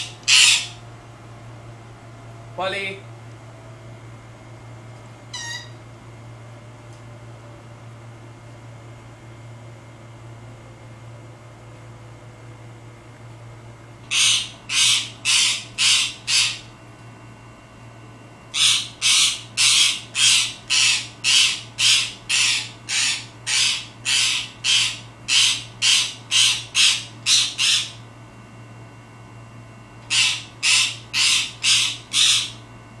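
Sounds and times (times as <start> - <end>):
parakeet harsh barking calls: 0.0 - 0.8, 5.3 - 5.8, 14.1 - 16.7, 18.5 - 28.0, 30.0 - 32.6.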